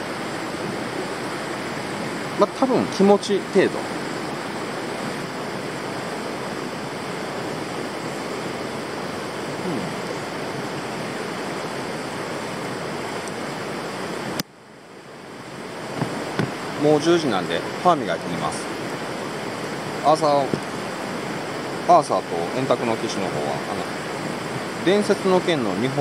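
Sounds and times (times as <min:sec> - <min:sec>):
river rushing: 0:00.0 - 0:26.0.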